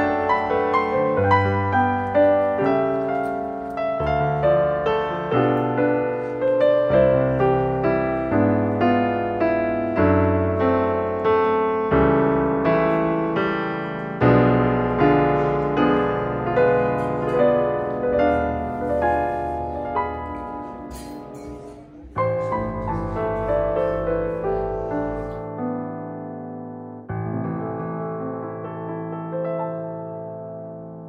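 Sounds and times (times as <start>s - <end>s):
gentle piano music: 0.0s - 31.0s.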